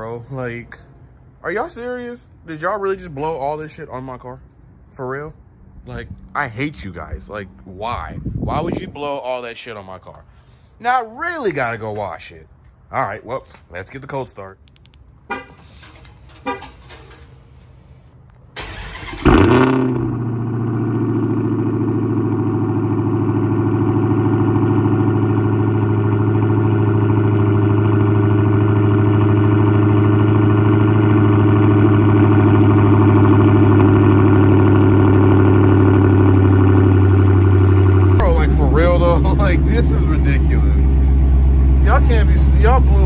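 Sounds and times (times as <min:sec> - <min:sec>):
car engine starting and idling: 0:14.7 - 0:43.0.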